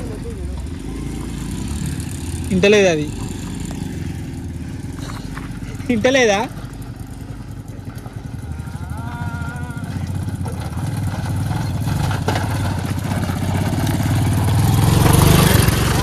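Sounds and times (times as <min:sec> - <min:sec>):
motorcycle engine labouring uphill: 0:00.0 - 0:16.0.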